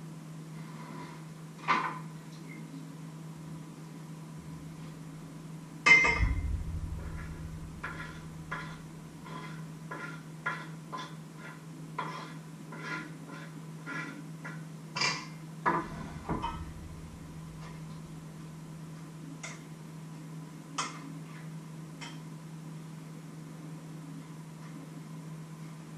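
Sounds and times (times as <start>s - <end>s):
heavy thump: 4.4s - 5.4s, 6.2s - 9.4s, 15.7s - 18.8s
knocks: 6.2s - 9.3s, 15.7s - 18.2s.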